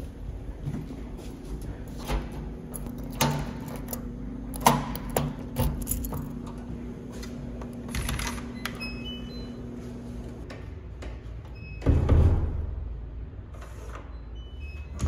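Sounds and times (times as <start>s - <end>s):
keys rattling: 2.0s - 6.7s
electronic lock beeps: 7.9s - 9.7s, 14.1s - 15.0s.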